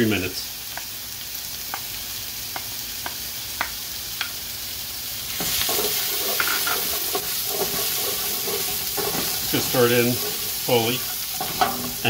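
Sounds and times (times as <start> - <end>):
vegetables sizzling in oil: 0.0 - 12.0
wooden spoon stirring: 5.4 - 12.0.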